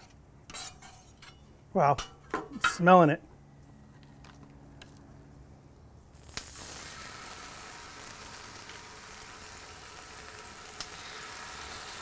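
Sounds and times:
steak searing hiss: 6.2s - 12.0s.

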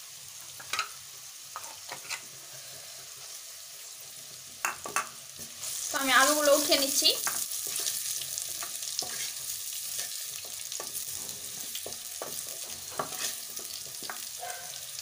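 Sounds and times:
potatoes sizzling in hot oil: 0.0s - 15.0s.

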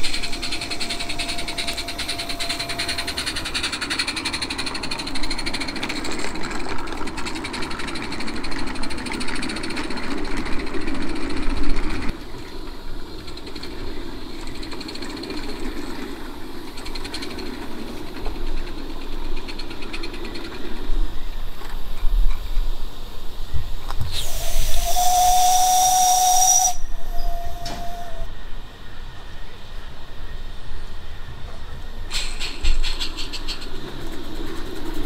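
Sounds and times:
small wheels clattering on rails: 0.0s - 22.8s, 31.4s - 35.0s
model steam locomotive chuffing: 0.0s - 23.3s, 24.1s - 28.4s, 31.6s - 35.0s.

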